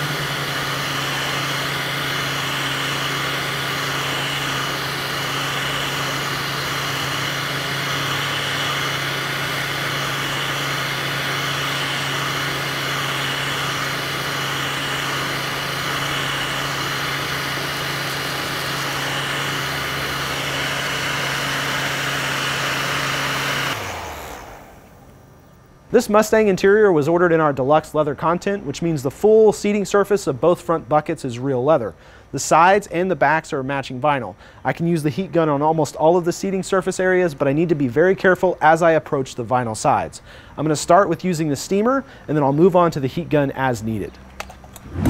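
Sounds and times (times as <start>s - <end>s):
heat gun fan humming: 0.0s - 25.6s
rush of blown air: 44.8s - 45.0s.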